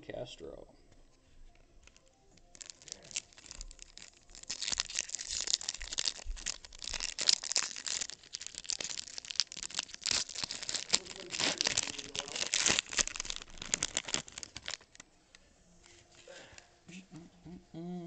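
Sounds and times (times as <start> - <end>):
foil wrapper tearing and crinkling: 1.8 - 15.0.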